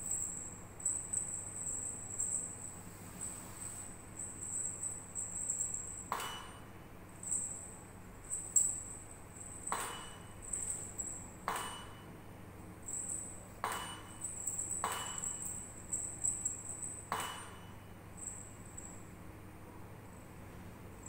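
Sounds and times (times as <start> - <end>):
faint high jingling: 0.0 - 19.4
sharp ringing clicks: 4.2 - 12.2, 12.8 - 19.1.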